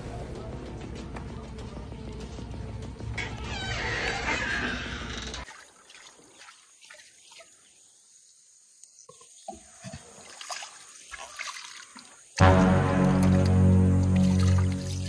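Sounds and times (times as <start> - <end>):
hands splashing in water: 5.5 - 7.6
music track: 12.4 - 15.0.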